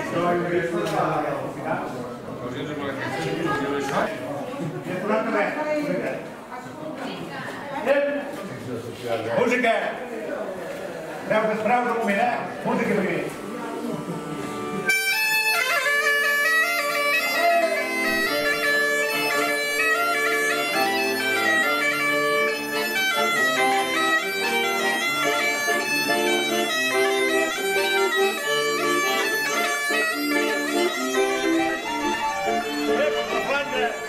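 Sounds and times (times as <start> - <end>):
reed wind instruments playing: 13.2 - 34.0.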